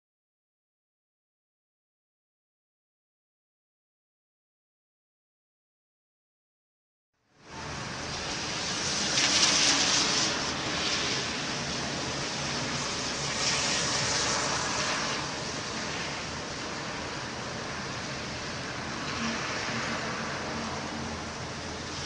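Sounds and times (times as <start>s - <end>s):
rain rushing hiss: 7.4s - 22.0s.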